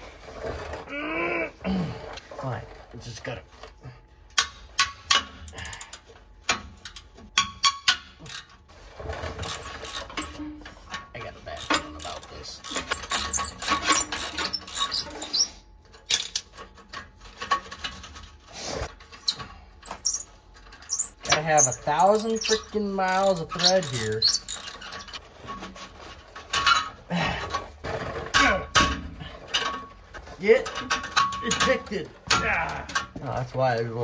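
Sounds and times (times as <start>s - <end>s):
ratchet wrench clicking: 11.6s - 15.4s, 22.1s - 25.2s.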